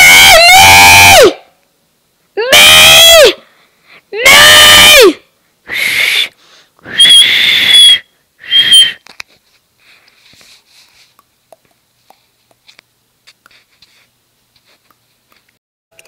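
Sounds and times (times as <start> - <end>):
shrill breathy squeals: 5.7 - 9.0.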